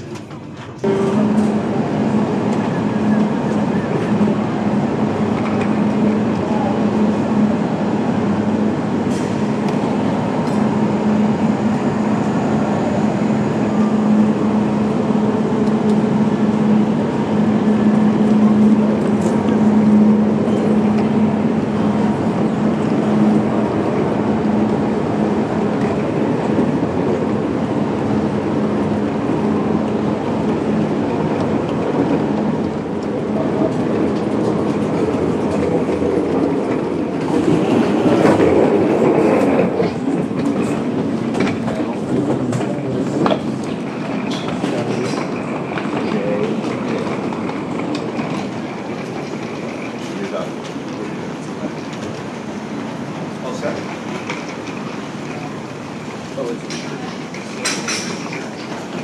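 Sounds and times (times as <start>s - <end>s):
train humming: 0.0s - 59.0s
station noise: 0.8s - 7.2s.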